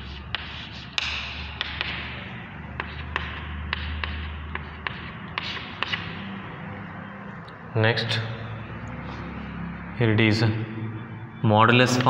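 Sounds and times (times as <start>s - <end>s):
chalk tapping and scratching: 0.0s - 6.4s.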